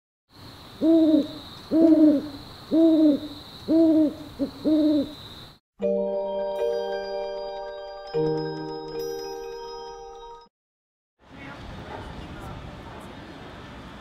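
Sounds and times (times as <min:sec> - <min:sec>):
owl hooting: 0:00.8 - 0:05.3
mallet percussion music: 0:05.8 - 0:10.5.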